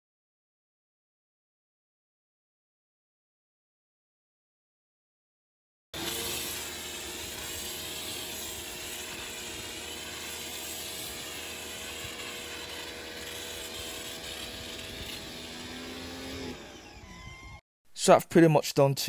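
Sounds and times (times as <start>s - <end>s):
pressure washer motor hum: 6.0s - 17.6s
hiss of spray: 6.1s - 15.0s.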